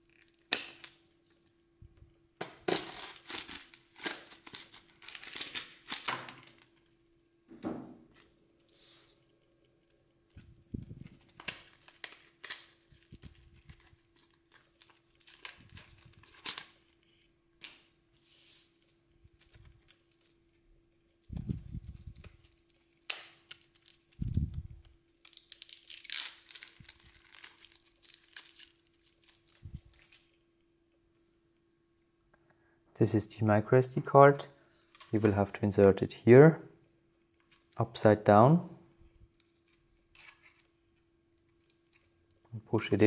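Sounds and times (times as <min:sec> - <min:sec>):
packaging tearing and crinkling: 0:02.7 - 0:06.8, 0:11.1 - 0:17.0, 0:22.0 - 0:24.4, 0:25.2 - 0:30.4.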